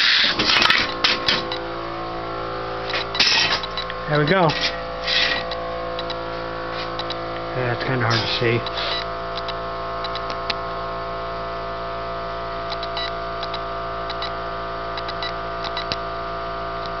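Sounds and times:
electrical hum of plasma cutter: 0.0s - 17.0s.

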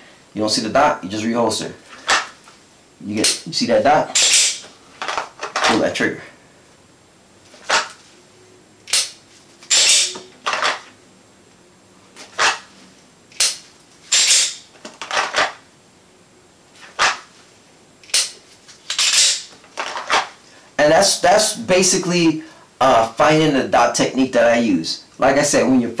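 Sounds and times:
pistol slide racking: 2.0s - 2.4s, 4.2s - 5.8s, 7.6s - 8.0s, 8.9s - 10.9s, 12.2s - 12.7s, 13.4s - 15.6s, 16.9s - 17.3s, 18.0s - 20.4s
pistol holster scraping: 4.2s - 5.8s, 7.5s - 8.0s, 9.7s - 10.9s, 12.2s - 12.8s, 13.5s - 15.6s, 16.8s - 17.3s, 18.8s - 20.4s
pistol trigger clicks: 8.9s - 10.1s, 13.4s - 14.6s, 18.0s - 18.3s.

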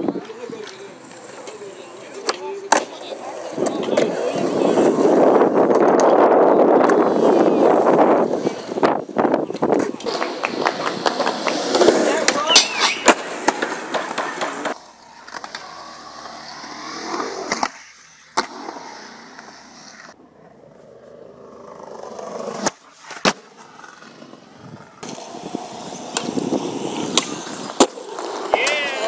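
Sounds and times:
skateboard clacking on ground: 0.0s - 7.4s, 8.4s - 16.4s, 22.6s - 29.0s
skateboard wheels rolling on concrete: 0.0s - 29.0s.

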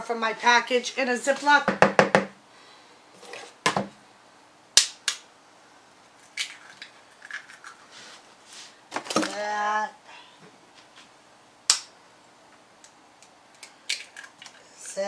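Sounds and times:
eggs cracking: 6.3s - 7.8s, 12.8s - 14.8s.

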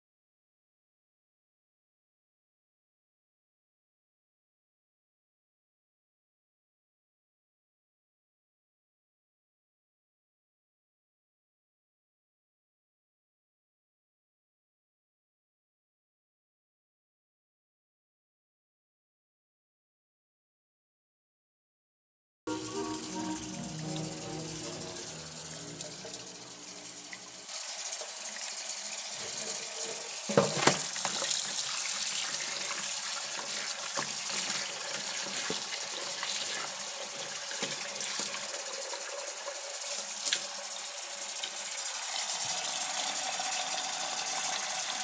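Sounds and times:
background music: 22.5s - 27.4s
faucet running into container: 22.5s - 45.0s
hand stirring wedges in water: 30.6s - 38.4s.

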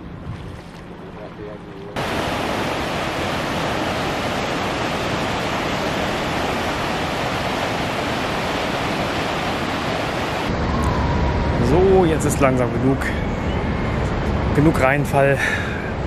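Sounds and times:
waterfall rushing: 2.0s - 10.5s.

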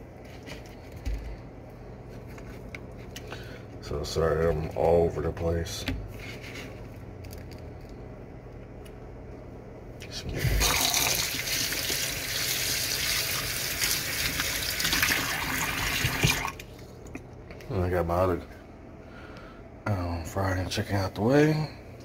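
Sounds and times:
water running into steel sink: 10.6s - 16.6s.

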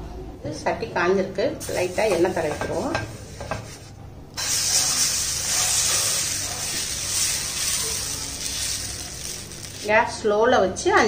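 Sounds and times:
batter sizzling on frying pan: 1.6s - 10.2s.

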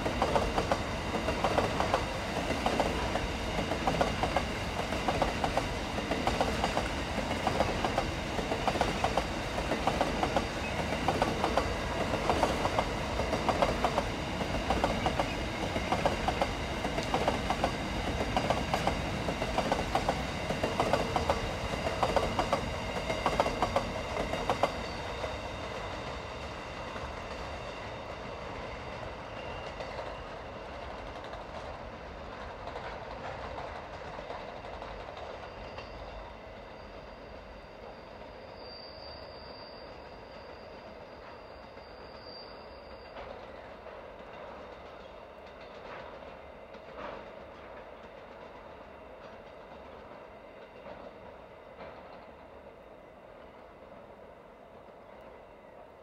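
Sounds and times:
train wheels clacking over joints: 0.0s - 26.0s, 43.2s - 52.3s
train rumble: 0.0s - 38.4s.

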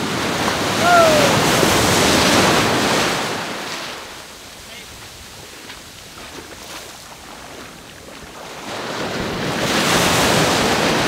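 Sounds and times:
ocean surf washing: 0.0s - 11.0s
wave surging in: 0.6s - 3.6s
small water splashes: 5.4s - 9.5s.

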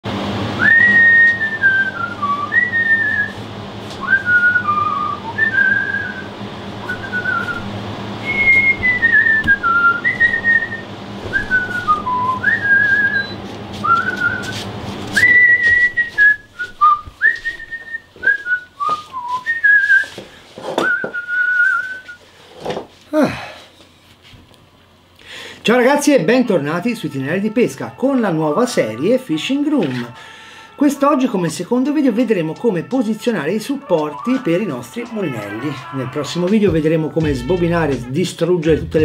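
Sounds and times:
steady low hum: 0.1s - 20.6s
person whistling a tune: 0.6s - 3.4s, 4.0s - 14.6s, 15.2s - 20.2s, 20.8s - 22.2s, 33.8s - 36.5s.

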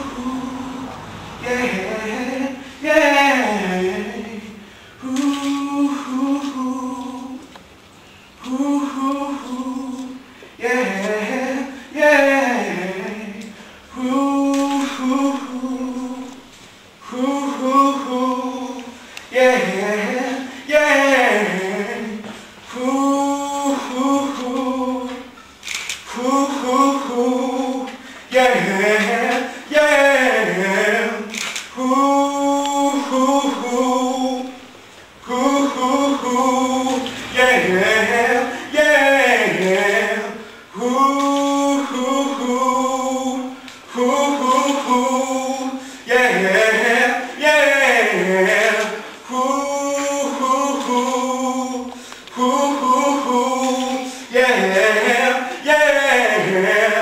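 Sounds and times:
person singing unaccompanied: 0.0s - 7.6s, 8.4s - 25.4s, 26.0s - 57.0s.

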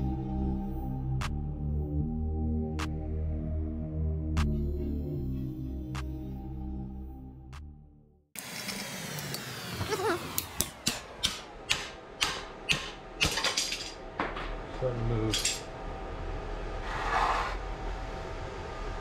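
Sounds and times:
hammer striking metal: 10.5s - 14.5s.

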